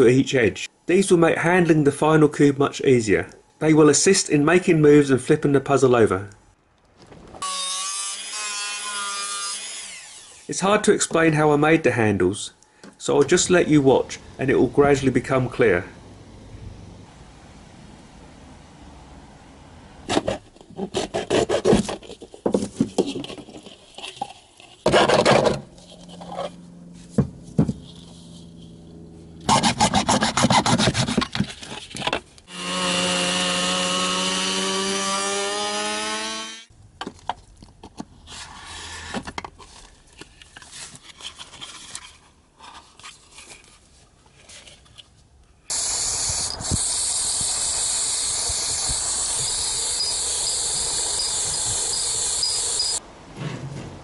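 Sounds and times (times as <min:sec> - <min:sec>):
rotary tool grinding: 0:07.4 - 0:10.5, 0:24.9 - 0:26.6, 0:45.7 - 0:53.0
hacksaw cutting plastic: 0:20.1 - 0:26.5, 0:29.4 - 0:36.7, 0:45.7 - 0:53.0
aerosol spray can hissing: 0:45.7 - 0:53.0.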